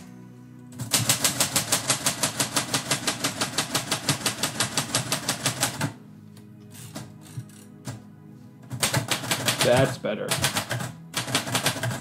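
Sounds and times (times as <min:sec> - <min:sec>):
typewriter keystrokes: 0:00.8 - 0:05.9, 0:08.7 - 0:12.0.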